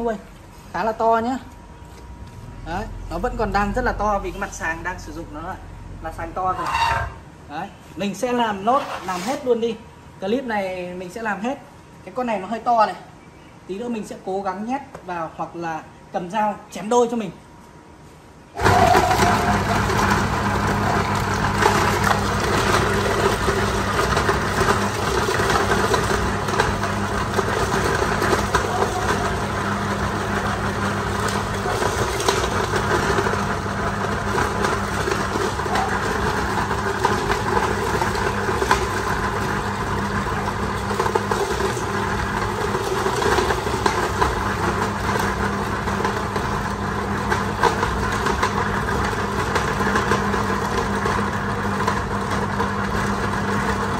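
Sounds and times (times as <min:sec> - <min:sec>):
meat grinder motor hum: 0:18.6 - 0:53.9.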